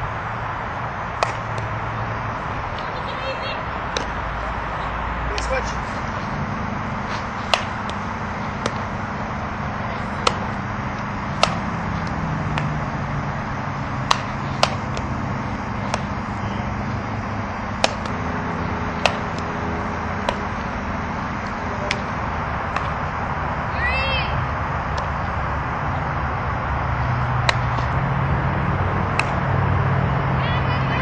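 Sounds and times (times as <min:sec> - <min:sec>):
softball striking bat and glove: 0:01.0 - 0:02.9, 0:03.9 - 0:04.2, 0:05.3 - 0:23.6, 0:24.8 - 0:25.3, 0:27.3 - 0:28.0, 0:29.0 - 0:29.6.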